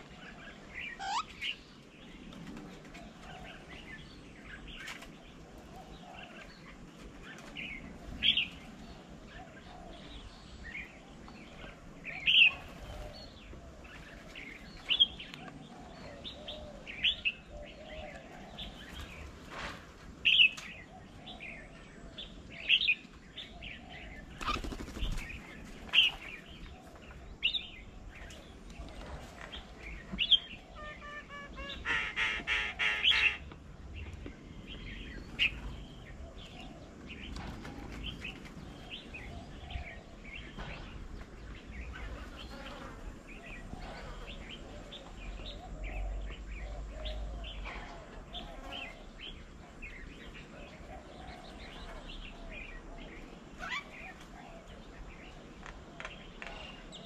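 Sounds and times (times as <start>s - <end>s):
wings fluttering: 24.3s - 26.3s
loud sharp bird call: 30.7s - 33.4s
harsh bird chattering: 30.8s - 33.4s.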